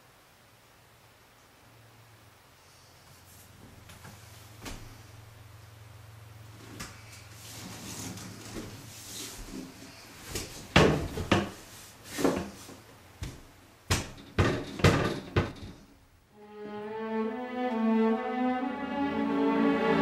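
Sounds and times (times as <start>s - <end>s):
slow bowed-string music: 16.3s - 20.0s.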